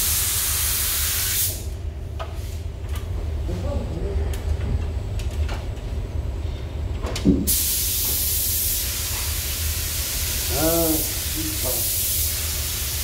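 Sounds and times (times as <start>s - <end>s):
paint spray gun hissing: 0.0s - 1.6s, 7.5s - 13.0s
constant low hum: 0.0s - 13.0s.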